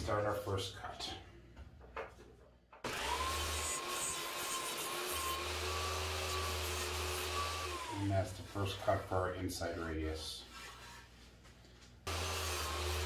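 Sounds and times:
table saw motor whining: 0:02.9 - 0:08.1, 0:12.1 - 0:13.0
saw blade cutting wood: 0:02.9 - 0:08.2, 0:12.1 - 0:13.0.

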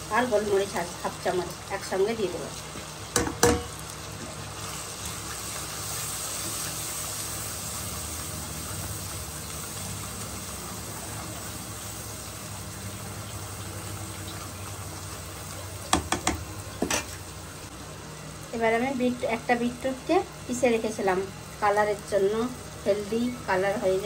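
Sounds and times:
food sizzling in oil: 0:00.0 - 0:24.0
spatula knocking against pan: 0:15.9 - 0:17.1.

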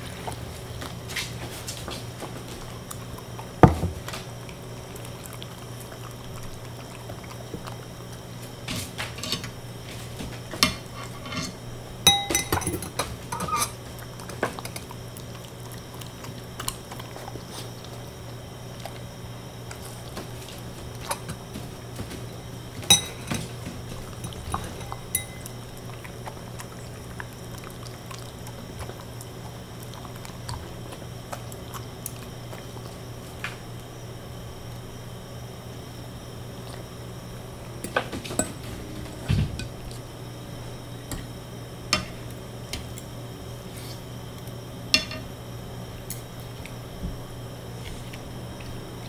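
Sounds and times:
steady low hum: 0:00.0 - 0:49.0
dishware clinking and knocking: 0:12.1 - 0:13.6.

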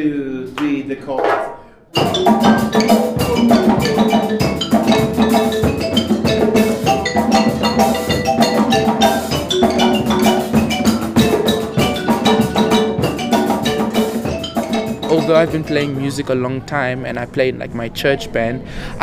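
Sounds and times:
hand drums: 0:01.2 - 0:16.2
marimbas playing repeated notes: 0:01.9 - 0:16.3.

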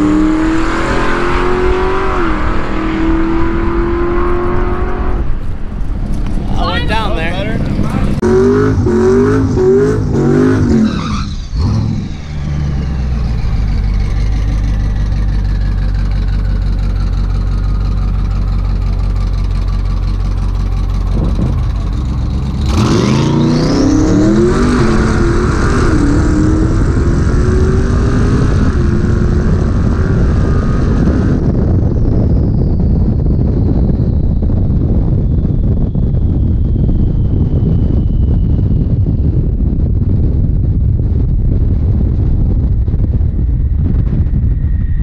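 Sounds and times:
car engine revving: 0:00.0 - 0:31.9
high turbo whistle: 0:31.5 - 0:39.4.

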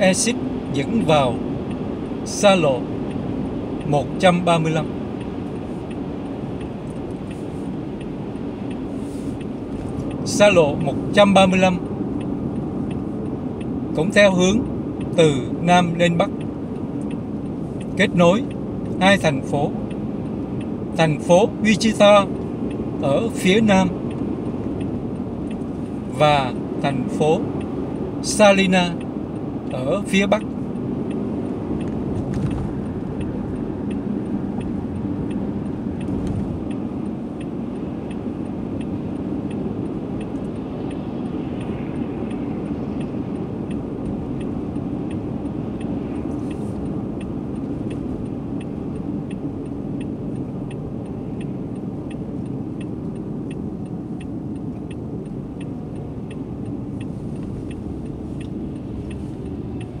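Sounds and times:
car road and engine noise: 0:00.0 - 1:00.0
light regular ticking: 0:00.0 - 1:00.0.

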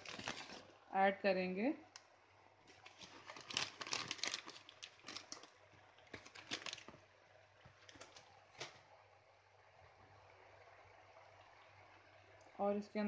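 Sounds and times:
plastic packet crinkling: 0:00.0 - 0:00.8, 0:02.7 - 0:07.1, 0:07.7 - 0:08.8.

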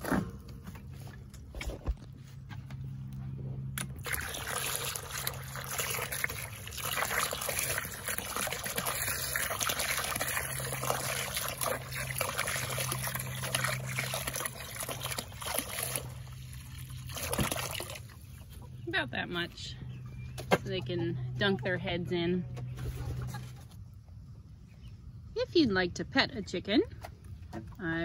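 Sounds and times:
water pouring into a bucket: 0:03.8 - 0:18.4.

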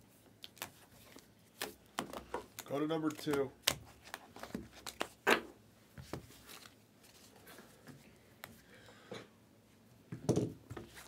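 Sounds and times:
cards tapping and rustling: 0:00.5 - 0:06.8.

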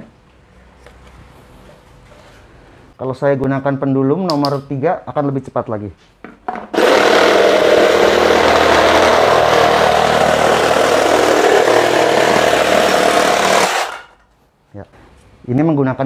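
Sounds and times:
jigsaw cutting plywood: 0:06.8 - 0:14.1.

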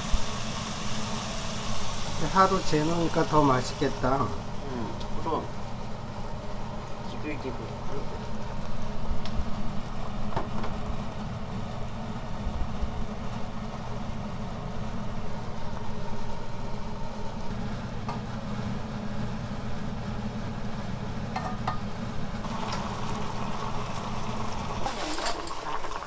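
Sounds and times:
meat sizzling in a frying pan: 0:00.0 - 0:04.1, 0:22.5 - 0:26.0.

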